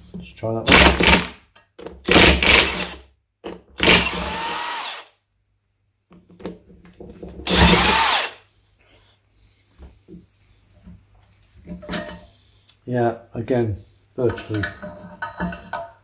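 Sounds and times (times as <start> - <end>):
impact wrench bursts: 0.7 - 1.3, 2.1 - 3.0, 3.8 - 5.1, 7.5 - 8.4.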